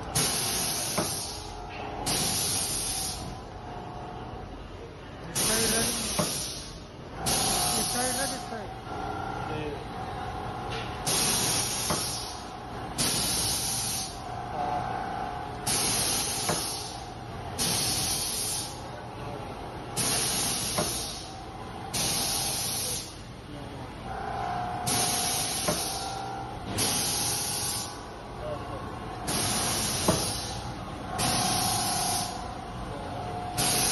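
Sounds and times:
pneumatic air hiss: 0.2 - 3.4, 5.3 - 8.4, 11.0 - 14.2, 15.6 - 18.8, 20.0 - 23.2, 24.9 - 28.0, 29.3 - 32.4, 33.6 - 33.9.

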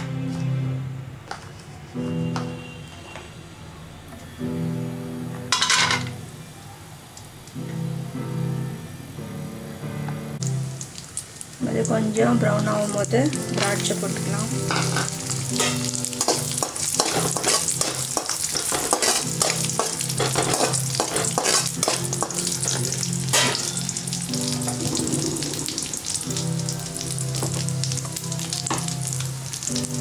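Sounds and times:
nuts frying in hot oil: 10.4 - 30.0
spatula scraping a pan: 14.6 - 23.9.

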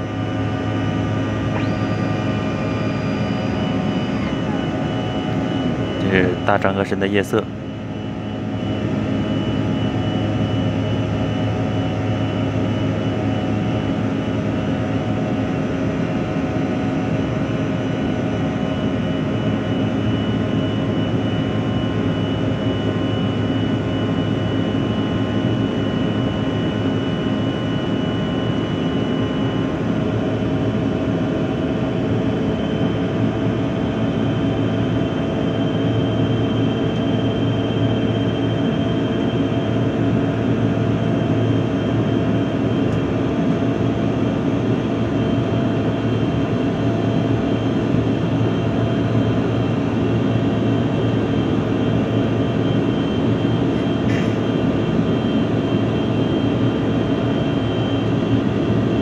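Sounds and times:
airliner engine drone: 0.0 - 59.0.

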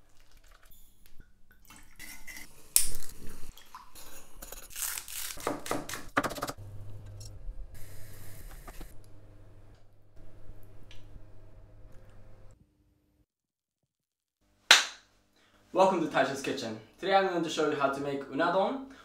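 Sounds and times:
liquid pouring through strainer: 0.0 - 0.7
low steady hum: 6.6 - 12.6.

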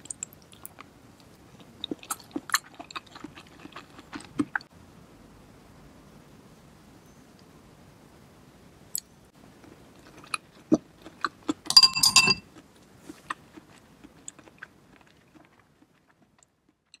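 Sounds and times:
clinks with bowl ringing: 11.7 - 12.4
utensils knocking ceramic bowl: 11.7 - 12.4.

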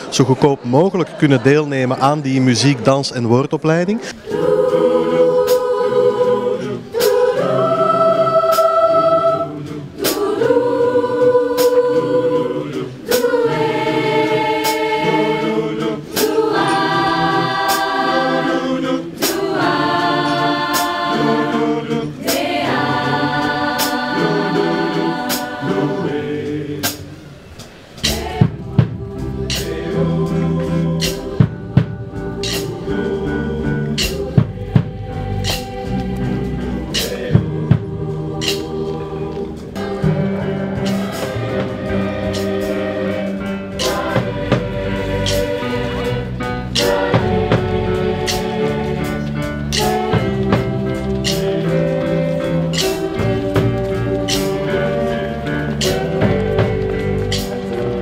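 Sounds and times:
choir singing: 4.0 - 58.0
instrumental music with bass: 28.0 - 58.0.

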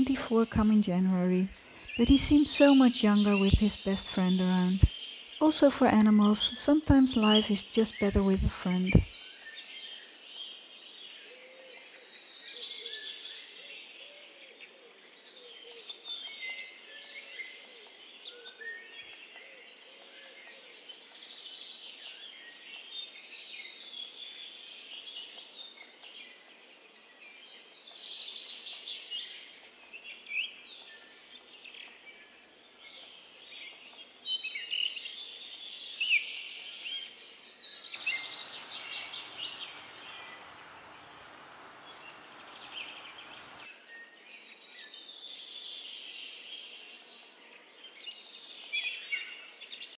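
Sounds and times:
faint outdoor hiss: 0.0 - 11.2, 35.1 - 44.0
songbirds chirping: 0.0 - 49.9.

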